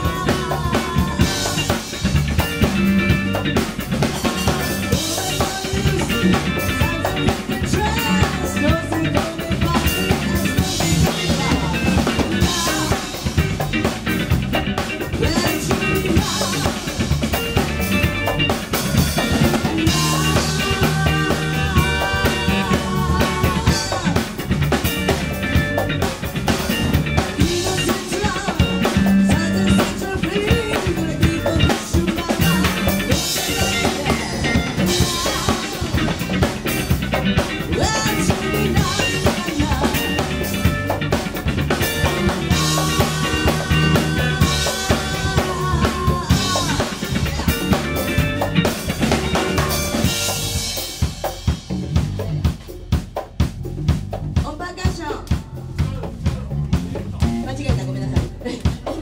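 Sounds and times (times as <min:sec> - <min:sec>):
woman singing: 0:00.0 - 0:01.9, 0:04.1 - 0:13.4, 0:15.0 - 0:17.1, 0:19.2 - 0:24.4, 0:27.2 - 0:36.6, 0:37.6 - 0:40.8, 0:41.9 - 0:50.3
bass guitar: 0:00.0 - 0:59.0
drum kit beat: 0:00.0 - 0:59.0
electric guitar: 0:00.0 - 0:59.0.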